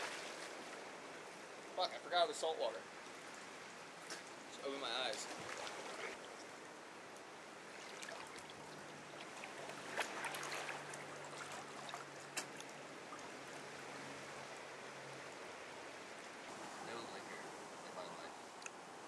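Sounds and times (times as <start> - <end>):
small sharp splashes: 5.1 - 6.5, 7.7 - 13.5
water lapping among rocks: 5.1 - 6.7, 7.6 - 14.1.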